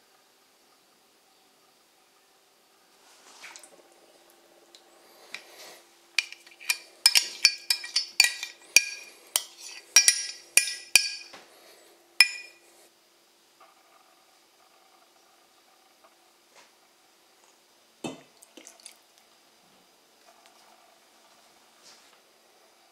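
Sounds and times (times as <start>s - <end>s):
metal spoon clinking on glass: 6.2s - 11.3s, 12.2s - 12.6s.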